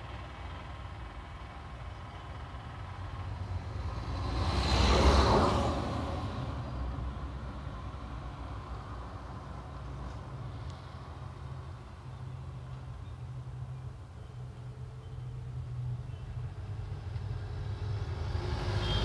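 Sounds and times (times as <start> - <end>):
vehicle passing by: 3.2 - 7.4, 17.1 - 19.0.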